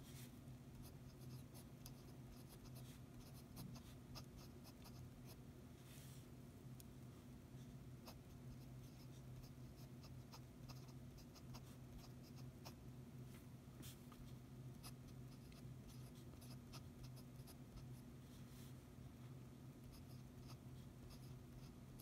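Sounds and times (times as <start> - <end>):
pen nib scratching on paper: 0.7 - 5.4, 8.0 - 12.8, 14.8 - 18.0, 19.8 - 22.0.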